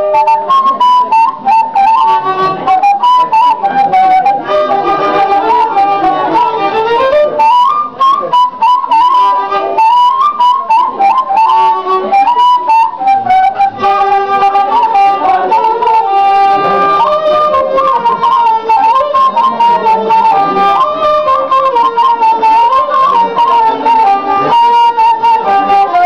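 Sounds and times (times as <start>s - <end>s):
end-blown cane flute melody: 0.0s - 26.0s
violin melody: 0.0s - 26.0s.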